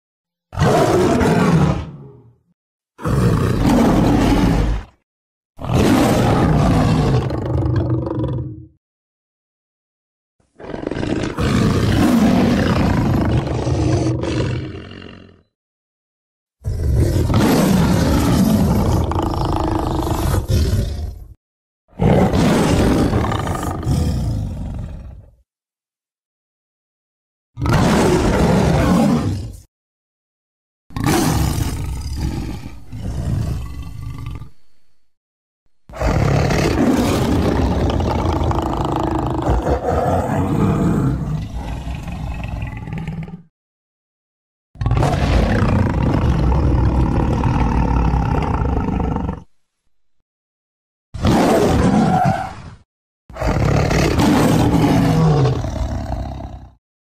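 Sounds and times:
big cat roaring: 0.5 - 2.4, 3.0 - 5.0, 5.6 - 8.7, 10.6 - 15.5, 16.6 - 25.4, 27.6 - 29.7, 30.9 - 34.6, 35.9 - 43.5, 44.8 - 49.5, 51.2 - 56.8.

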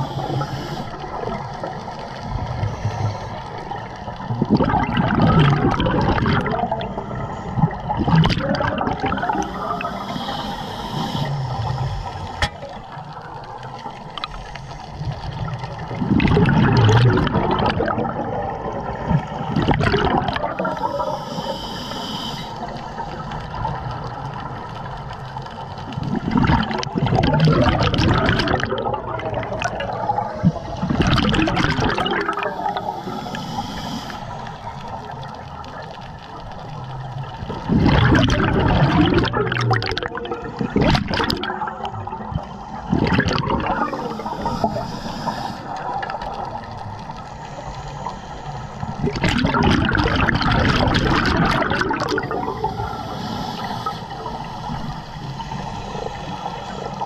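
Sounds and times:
regulator hiss: 0.0 - 4.0, 9.2 - 15.6, 20.6 - 23.8, 32.3 - 35.4, 43.7 - 49.0, 52.3 - 57.0
exhaled bubbles gushing: 0.0 - 21.5, 22.6 - 57.0.

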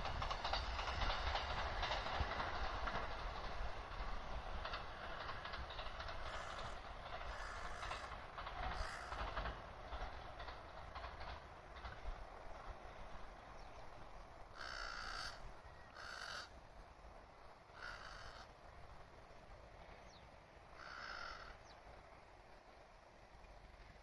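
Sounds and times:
crow cawing: 14.6 - 15.4, 16.0 - 16.6, 17.8 - 18.5, 20.8 - 21.6.

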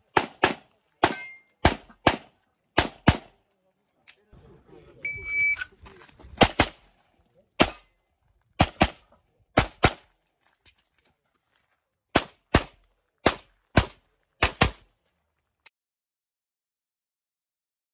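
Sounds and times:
handgun shots in quick pairs: 0.1 - 3.4, 6.4 - 6.8, 8.6 - 9.0, 9.6 - 10.1, 12.1 - 14.9.

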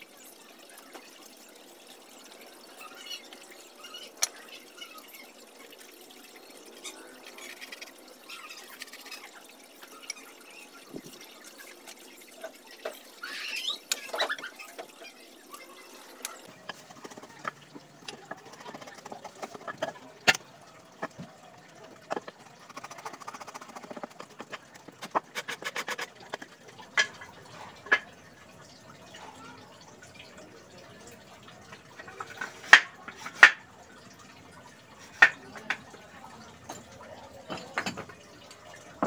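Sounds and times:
hand tool scraping wood: 25.0 - 26.1.

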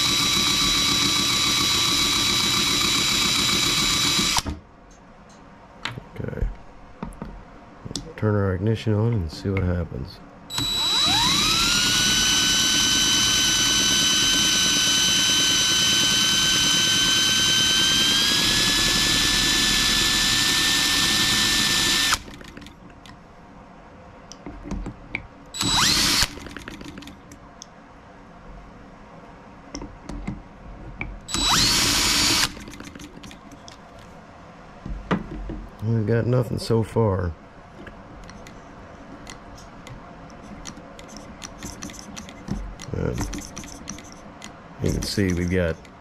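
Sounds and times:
short drill bursts: 0.0 - 4.5, 10.5 - 22.5, 25.6 - 26.7, 31.3 - 33.0
cordless drill motor whine: 0.0 - 4.6, 10.5 - 22.7, 25.6 - 27.1, 31.3 - 33.4, 44.8 - 45.8.

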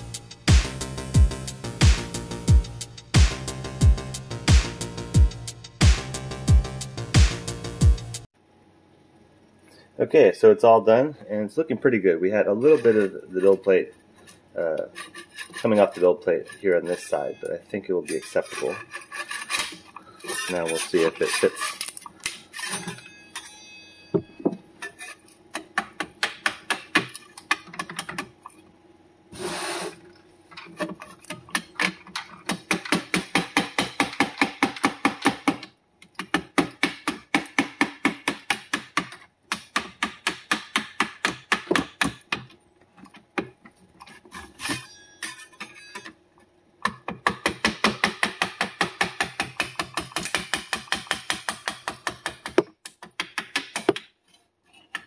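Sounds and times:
putty knife scraping plastic: 12.6 - 17.1, 18.1 - 23.0.

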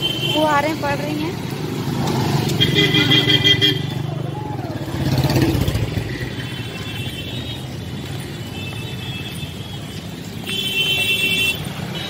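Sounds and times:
traffic rumble: 0.0 - 12.0
car horns honking: 2.4 - 4.1, 6.2 - 12.0.

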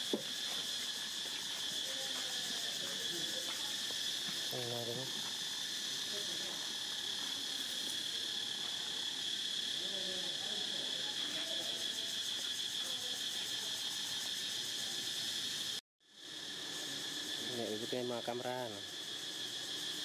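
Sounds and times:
insect chorus drone: 0.0 - 20.0.

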